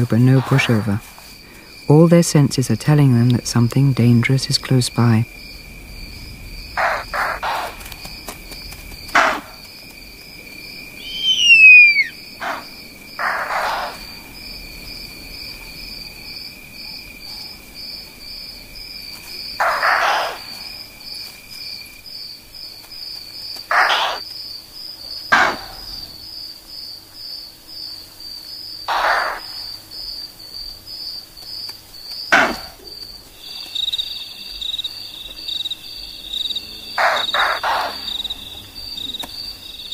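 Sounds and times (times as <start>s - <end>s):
crickets trilling: 0.0s - 39.9s
loud falling whistle: 11.0s - 12.2s.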